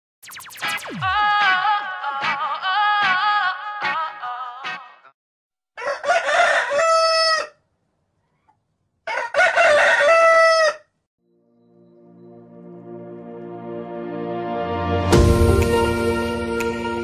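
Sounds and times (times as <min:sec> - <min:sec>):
music: 0:00.3 - 0:05.1, 0:11.3 - 0:17.0
rooster crowing: 0:05.8 - 0:07.7, 0:09.0 - 0:11.0.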